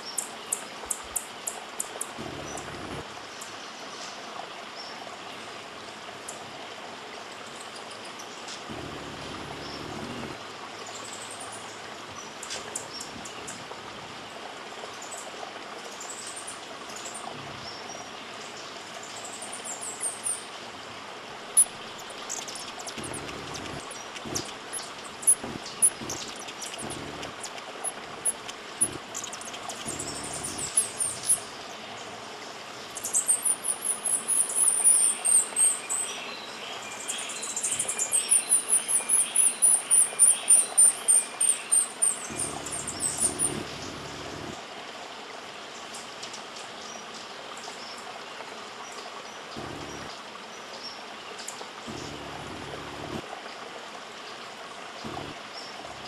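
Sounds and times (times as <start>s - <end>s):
rushing like running water: 0.0s - 56.0s
high-pitched bird chirps: 21.6s - 31.5s, 37.8s - 43.8s
sharp ticks: 21.6s - 31.5s.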